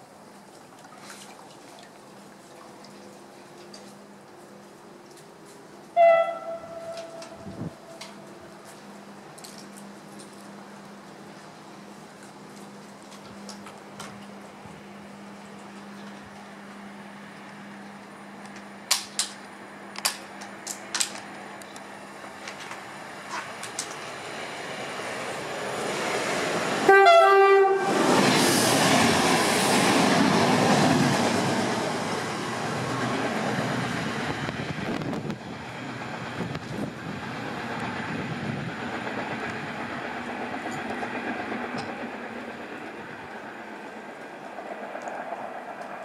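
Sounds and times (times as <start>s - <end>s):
train passing with wheel clatter: 2.1s - 46.0s
train horn blast: 5.9s - 8.3s, 26.8s - 28.1s.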